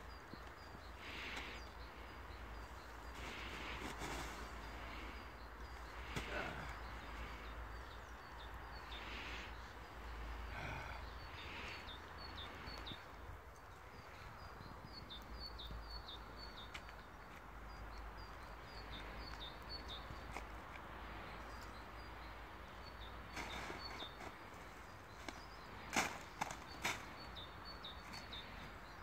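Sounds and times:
faint high bird chirps: 0:22.8 - 0:29.0.

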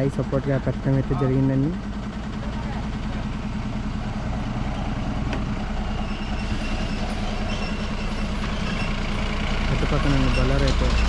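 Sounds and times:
truck diesel engine idling: 0:00.0 - 0:11.0.

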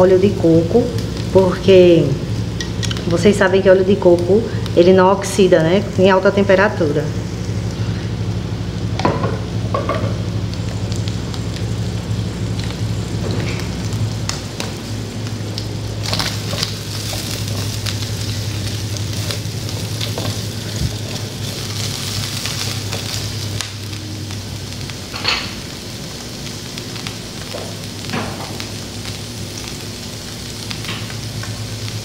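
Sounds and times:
meat sizzling in a pan: 0:07.2 - 0:32.0.

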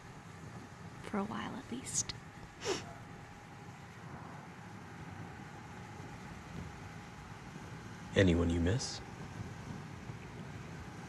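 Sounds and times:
breathy hiss: 0:01.9 - 0:02.9.

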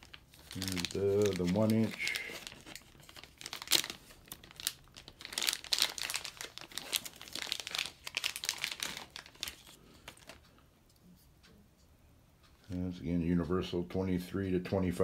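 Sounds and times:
plastic sleeve crinkling: 0:00.0 - 0:10.5.

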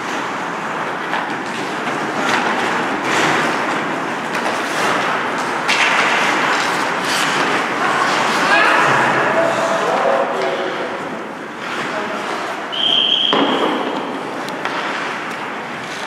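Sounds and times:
ice skate blades scraping: 0:00.0 - 0:09.9, 0:11.6 - 0:12.7, 0:13.6 - 0:16.0
steady rink hiss: 0:13.6 - 0:16.0.

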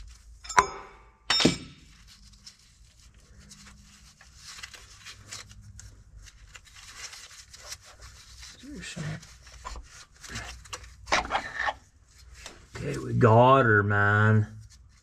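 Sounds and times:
steel tool clanking on metal: 0:00.4 - 0:01.8.

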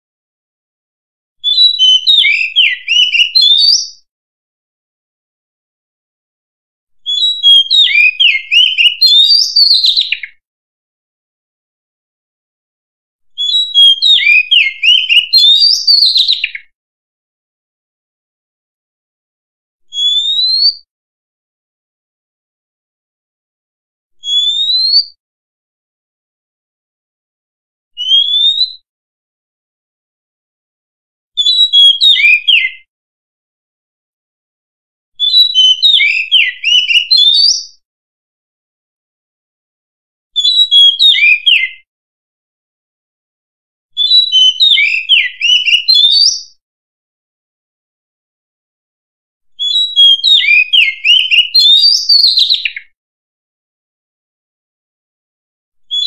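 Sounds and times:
bird singing whistled notes: 0:01.4 - 0:04.1, 0:07.0 - 0:10.4, 0:13.3 - 0:16.7, 0:19.9 - 0:20.9, 0:24.2 - 0:25.2, 0:28.0 - 0:28.8, 0:31.4 - 0:32.9, 0:35.2 - 0:37.8, 0:40.4 - 0:41.9, 0:44.0 - 0:46.6, 0:49.6 - 0:53.0.

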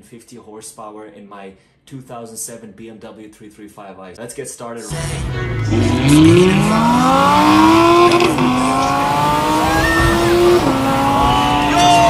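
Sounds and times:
car engine accelerating hard: 0:04.9 - 0:12.0.

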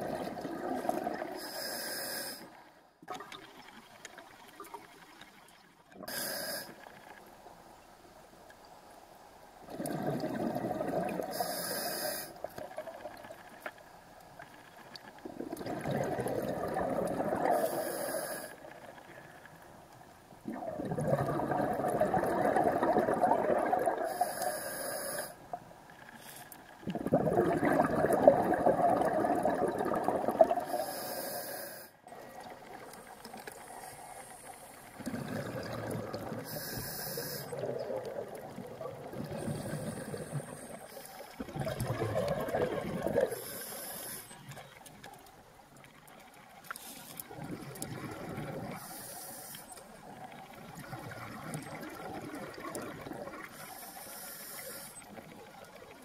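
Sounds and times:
regulator exhaling bubbles underwater: 0:00.0 - 0:01.5, 0:09.7 - 0:11.6, 0:15.2 - 0:18.3, 0:20.4 - 0:24.5, 0:26.8 - 0:30.9, 0:34.9 - 0:43.7, 0:47.3 - 0:49.1, 0:50.0 - 0:53.7.

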